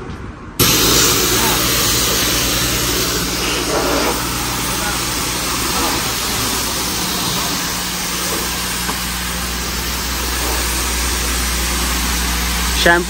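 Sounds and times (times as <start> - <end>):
pressure washer spraying water: 0.6 - 13.0
steady low hum: 0.6 - 13.0.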